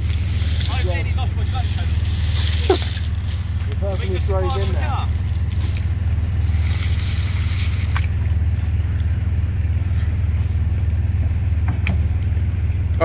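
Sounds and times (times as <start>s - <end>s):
car engine humming: 0.0s - 13.0s
water splashing: 4.5s - 9.5s.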